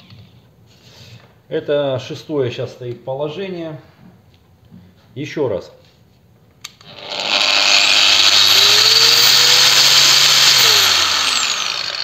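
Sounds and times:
angle grinder running: 6.8s - 12.0s.

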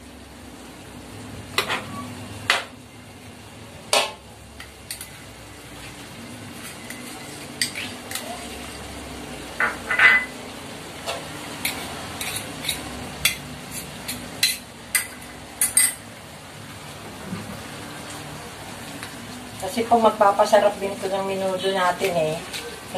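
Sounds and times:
metal spatula scraping a wok: 6.6s - 8.8s, 11.1s - 14.6s.

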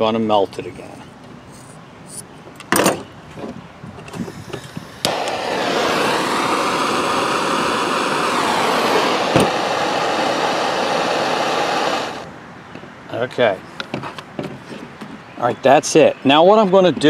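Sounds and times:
gas torch flame hissing: 4.2s - 12.3s.

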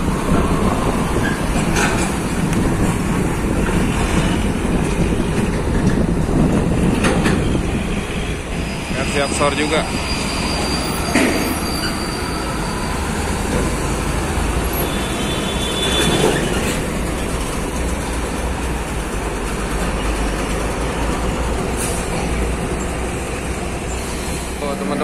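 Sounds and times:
trucks passing close by: 0.0s - 25.0s
high squeal: 8.5s - 13.6s, 14.6s - 16.8s.

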